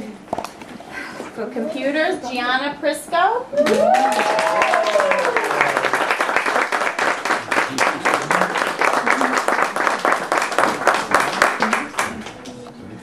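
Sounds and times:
audience applauding: 3.6s - 12.6s.

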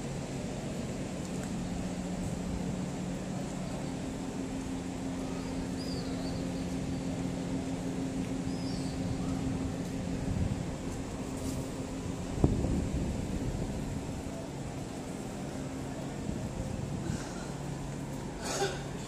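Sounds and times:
low mechanical hum: 0.0s - 19.0s
faint bird chirps: 5.2s - 6.8s, 8.4s - 9.5s.

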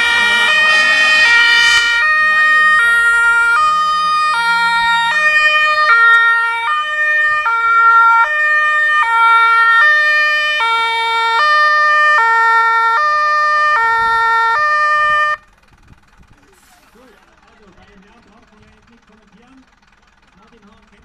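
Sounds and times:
fire engine two-tone siren: 0.0s - 15.6s.

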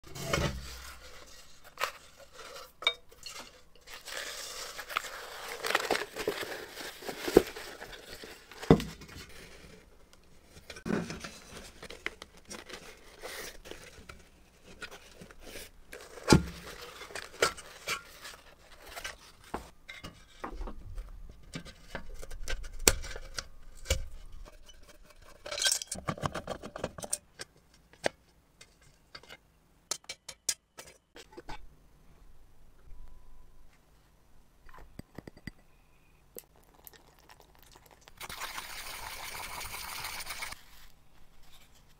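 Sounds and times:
rubbing and scraping: 0.0s - 9.9s.

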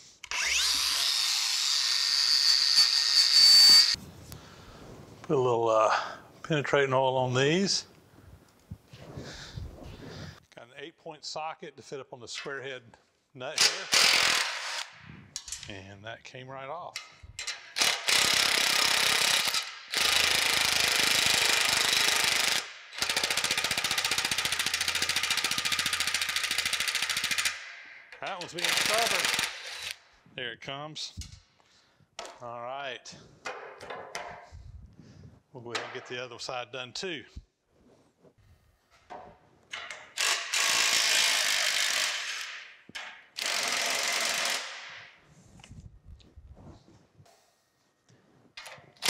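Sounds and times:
impact driver rattling on nut: 17.0s - 27.6s, 28.2s - 30.0s, 39.7s - 44.9s.

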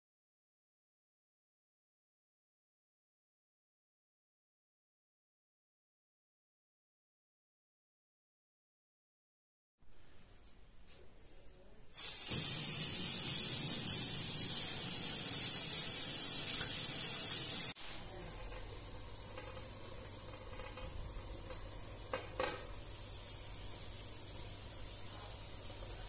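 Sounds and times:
pans sizzling: 12.0s - 26.0s
tap water running into tub: 12.0s - 26.0s.

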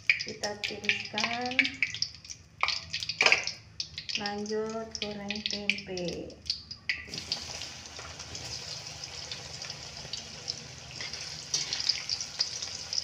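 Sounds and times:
hot oil sizzling and crackling: 0.0s - 13.0s
spatula stirring in a wok: 10.9s - 13.0s.

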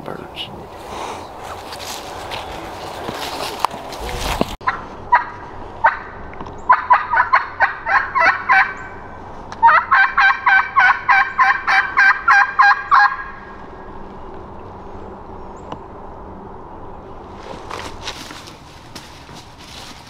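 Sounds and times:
turkey call hen yelps: 6.7s - 8.9s, 9.6s - 13.4s.

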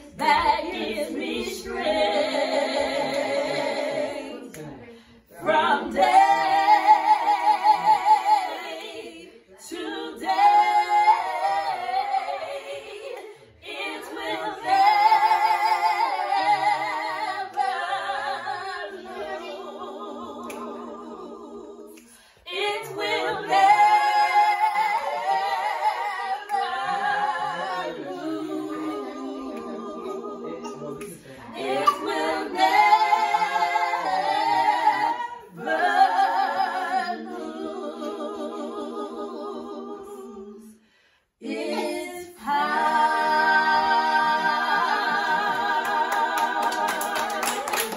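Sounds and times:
women singing a cappella: 0.0s - 47.9s.

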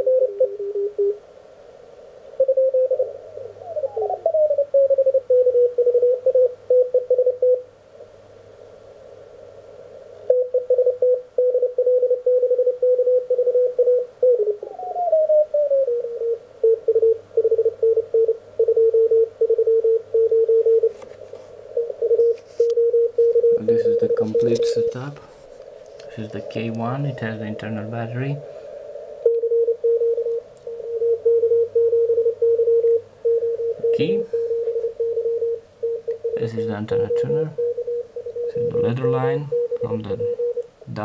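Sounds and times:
receiver hiss: 0.0s - 41.0s
morse code tone: 10.3s - 14.4s, 16.2s - 21.0s, 21.8s - 25.2s, 29.2s - 41.0s.

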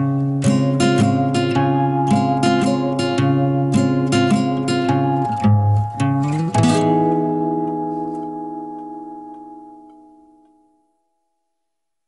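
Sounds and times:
strummed guitar chords: 0.0s - 11.1s.

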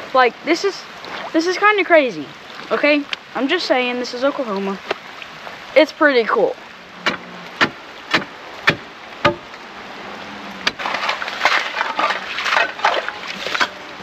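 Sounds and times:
ice cracking and crunching: 10.7s - 13.8s.

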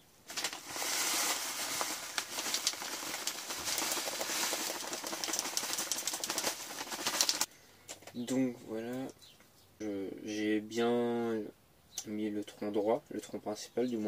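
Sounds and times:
plastic bag crinkling: 0.2s - 7.5s
soil pouring into plastic pot: 0.3s - 7.5s.

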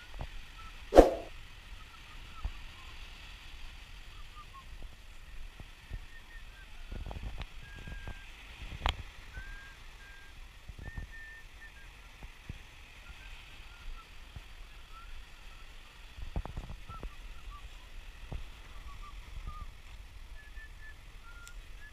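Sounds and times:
sharp click: 1.0s - 1.3s.

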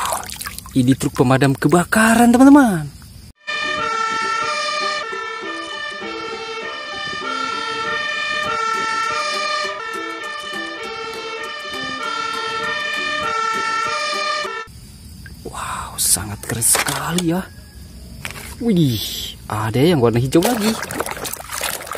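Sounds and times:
two-tone fire engine siren: 3.4s - 14.7s.

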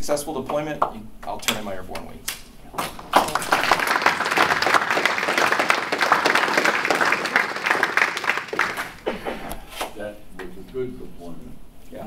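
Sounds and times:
audience applauding: 2.8s - 9.4s.

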